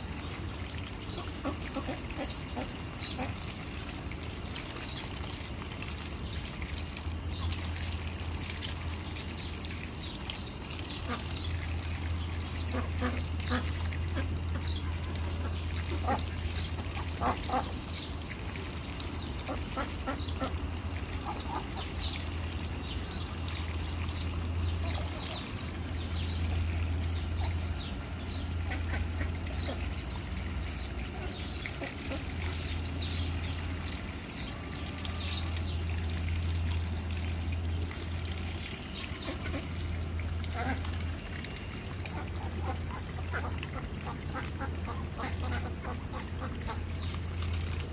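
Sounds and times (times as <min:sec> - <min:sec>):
trickling water: 0:00.0 - 0:47.9
ducks quacking: 0:01.1 - 0:03.4, 0:12.6 - 0:17.8, 0:19.4 - 0:22.1, 0:27.2 - 0:30.1, 0:39.2 - 0:40.9, 0:42.1 - 0:47.1
steady low hum: 0:05.6 - 0:47.9.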